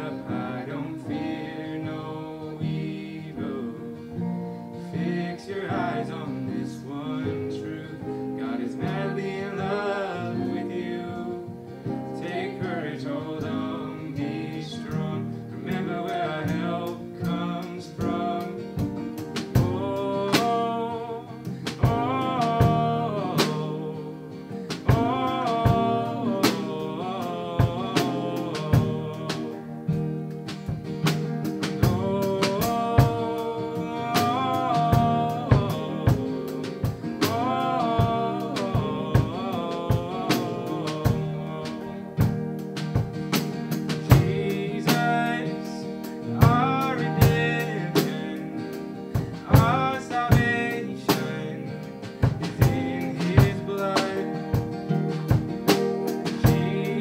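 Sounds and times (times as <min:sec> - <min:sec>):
acoustic and electric guitars: 0:00.0 - 0:57.0
keyboard: 0:00.0 - 0:57.0
person singing: 0:00.0 - 0:57.0
drum kit: 0:13.6 - 0:57.0.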